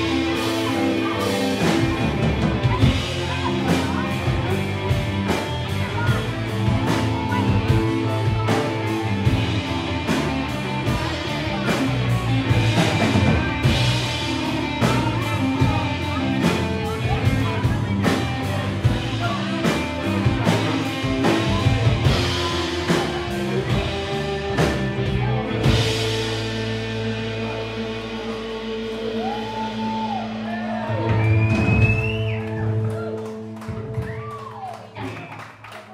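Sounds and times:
rock band playing: 0.0 - 35.9.

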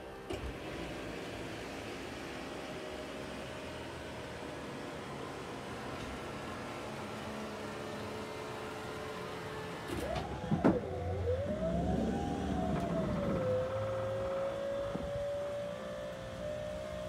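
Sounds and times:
electric motors whining: 0.2 - 17.0.

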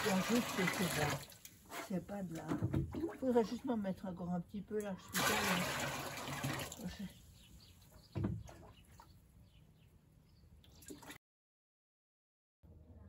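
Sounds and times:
water splashing in barrel: 0.0 - 3.4, 5.1 - 7.1, 10.7 - 11.2
dull knock: 8.1 - 8.5.

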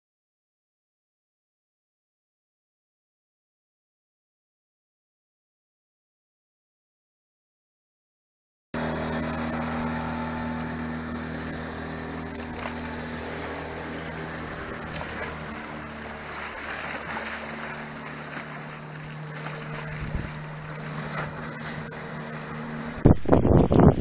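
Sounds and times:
outboard motor running: 8.8 - 24.0
water noise: 8.8 - 24.0
wind gusts on microphone: 19.8 - 20.6, 23.0 - 24.0.

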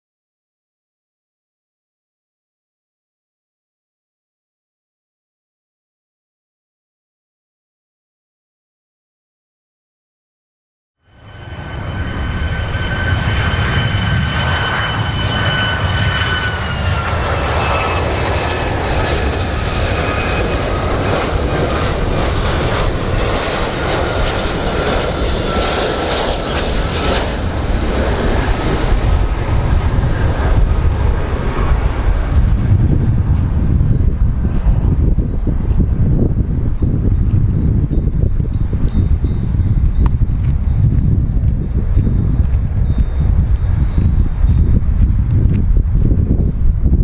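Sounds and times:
jet engine whine: 11.0 - 47.0
deep jet rumble: 11.1 - 47.0.

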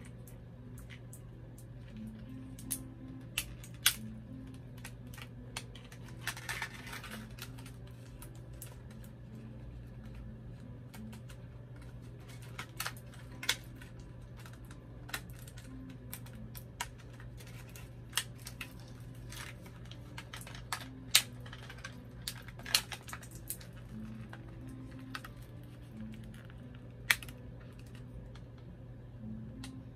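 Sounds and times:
plastic packaging clicking and crinkling: 0.0 - 28.6
low hum: 0.0 - 29.9.

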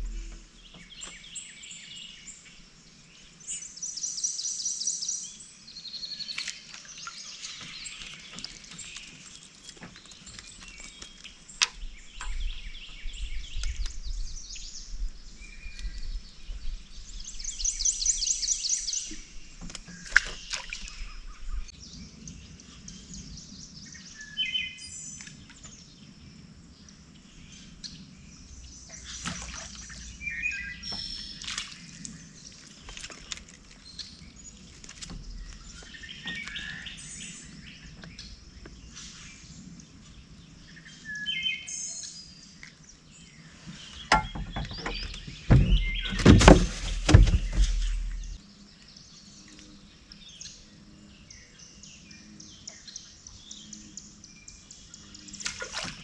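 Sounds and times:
songbirds chirping: 0.0 - 56.0
loud knocks and rattles: 44.1 - 48.4.

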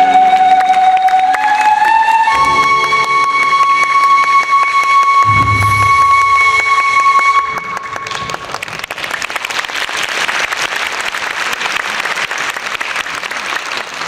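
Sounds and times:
audience applause: 0.0 - 14.0
held music note: 5.2 - 8.5.

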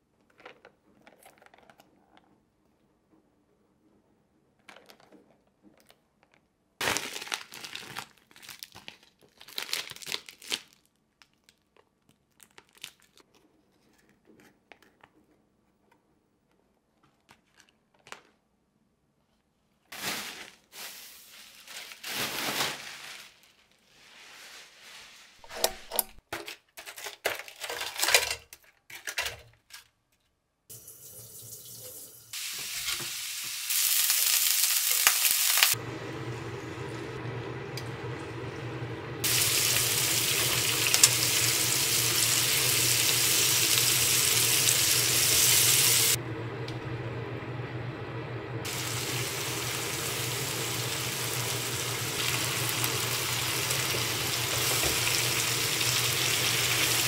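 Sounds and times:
plastic packaging crinkling: 6.8 - 13.4, 19.9 - 23.9
meat sizzling in a frying pan: 32.3 - 35.8, 39.2 - 46.2, 48.6 - 57.0.

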